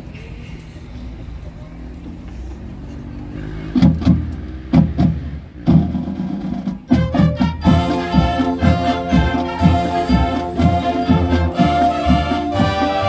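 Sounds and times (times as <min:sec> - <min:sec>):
drum and percussion hits: 0:03.7 - 0:13.0
brass and winds chords: 0:06.9 - 0:13.0.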